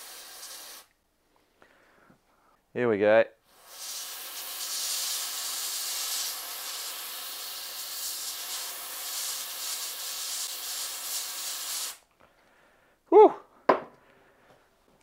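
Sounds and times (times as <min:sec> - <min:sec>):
aerosol spray hissing: 0:00.0 - 0:00.9, 0:03.5 - 0:12.0.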